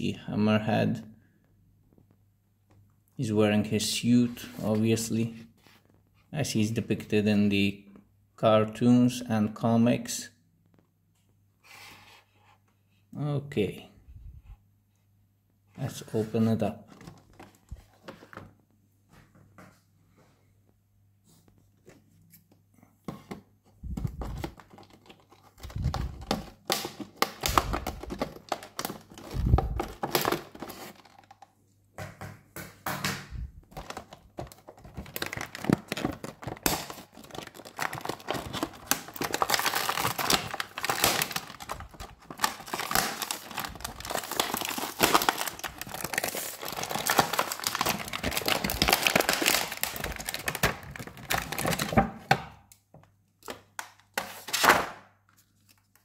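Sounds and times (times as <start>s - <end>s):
packaging crinkling and tearing: 24.2s - 31.4s, 33.7s - 52.3s.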